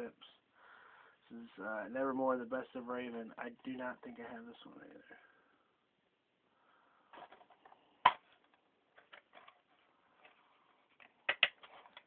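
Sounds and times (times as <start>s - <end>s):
plastic dvd cases clicking: 11.0s - 12.0s.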